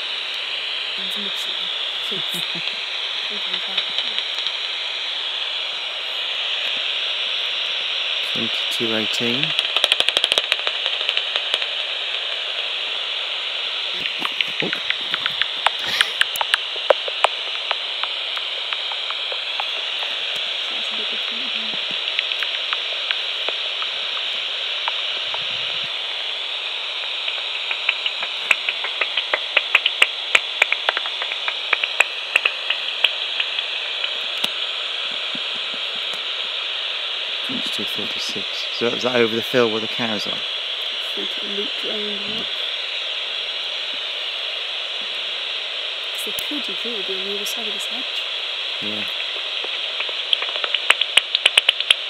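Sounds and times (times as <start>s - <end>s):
bat detector hiss: 0.0s - 52.0s
bat echolocation clicks: 3.6s - 4.8s, 9.5s - 12.7s, 14.1s - 20.5s, 22.0s - 25.4s, 26.6s - 35.2s, 49.1s - 52.0s.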